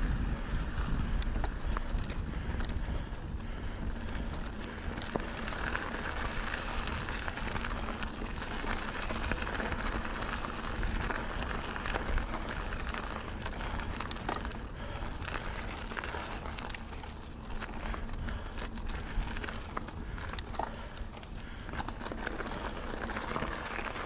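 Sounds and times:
bike tyres on dirt trail: 0.0 - 24.0
wind rumble on microphone: 0.0 - 24.0
sharp clicks and ticks: 1.1 - 3.4, 16.4 - 21.1.

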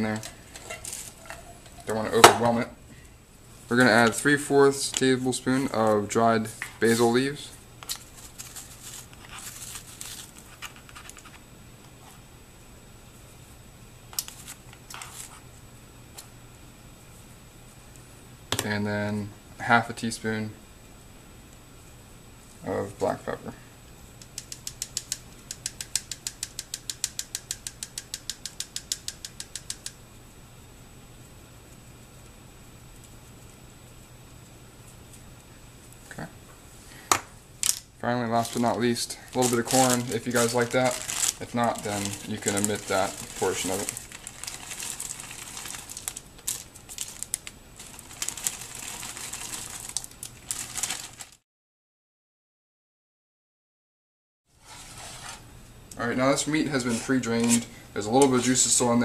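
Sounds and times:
plastic bag crinkling: 7.9 - 11.4, 38.3 - 51.4
corn kernels pouring: 39.4 - 47.2.

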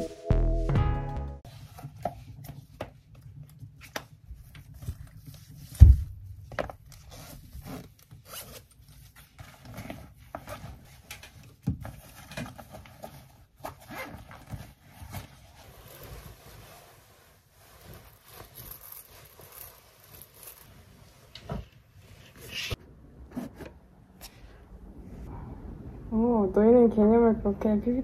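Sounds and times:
fabric rustling: 4.4 - 22.8
zipper zipping: 13.6 - 16.4, 17.6 - 20.7.

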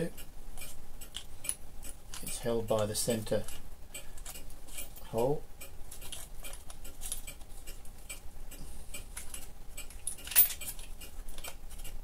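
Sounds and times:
small metal clicks: 0.2 - 8.2, 8.9 - 12.0
metal clink: 10.0 - 10.8.

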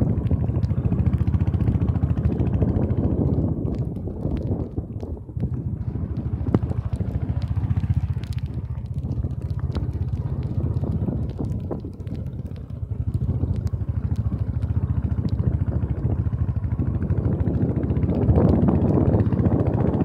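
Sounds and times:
motorcycle engine running: 0.0 - 20.0
clicks and rattles: 2.4 - 15.4.

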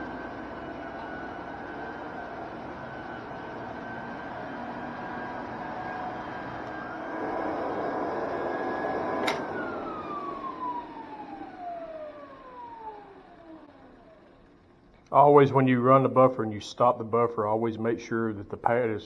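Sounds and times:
floor burnisher whine: 0.0 - 19.0
switch click: 9.2 - 9.5.

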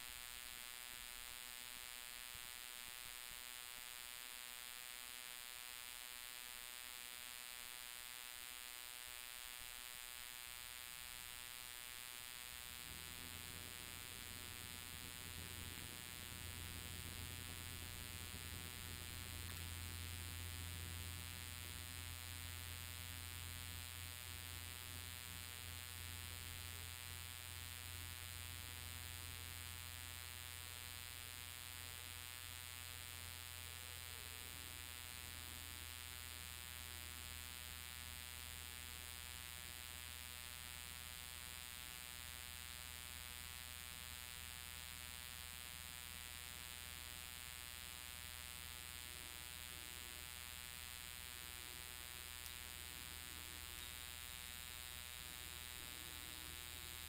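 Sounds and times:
plane engine drone in cockpit: 12.6 - 27.0.

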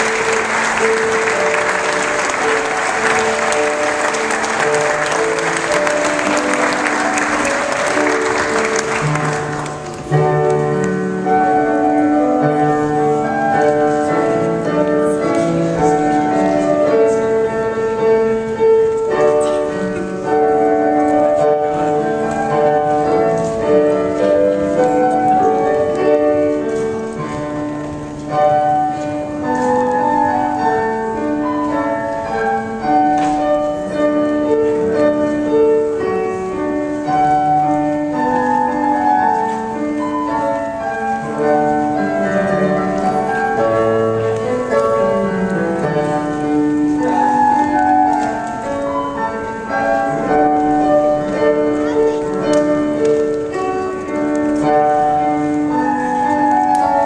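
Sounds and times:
guests applauding: 0.0 - 10.1
instrumental music: 0.0 - 57.0.

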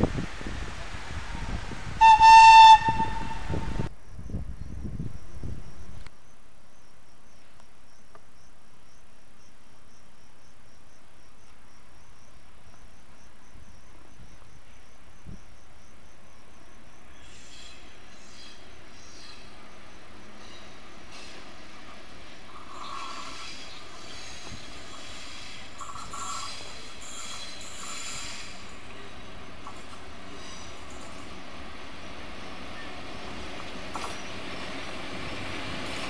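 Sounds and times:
locomotive horn blast: 2.0 - 3.9.

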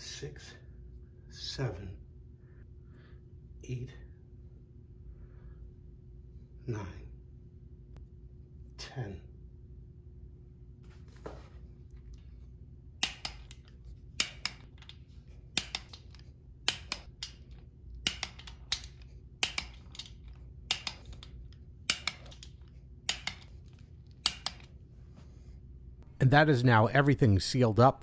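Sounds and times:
torque wrench clicking: 15.6 - 23.5, 24.2 - 24.7.

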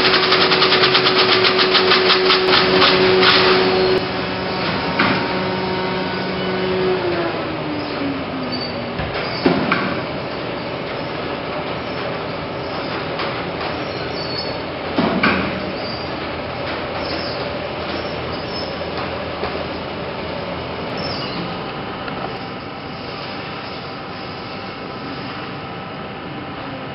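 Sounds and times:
film projector running: 0.0 - 8.5.

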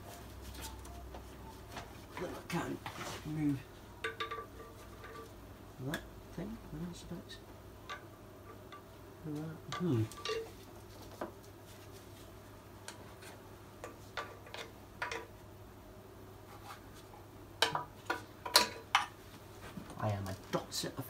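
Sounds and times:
hand tools clinking on metal: 9.7 - 10.6.

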